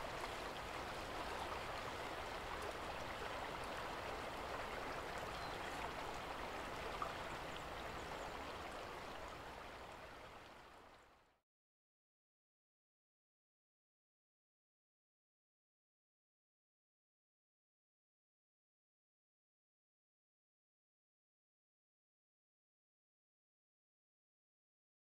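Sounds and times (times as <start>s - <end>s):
river flowing: 0.0s - 11.4s.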